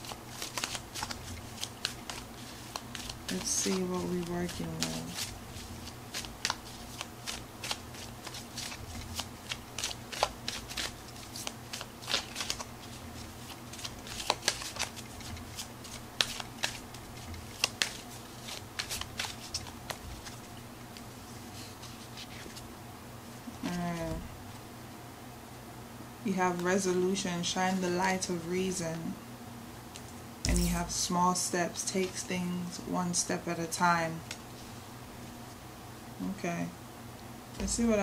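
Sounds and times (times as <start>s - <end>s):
cards being shuffled: 0.0s - 21.1s
faint low hum: 0.0s - 38.0s.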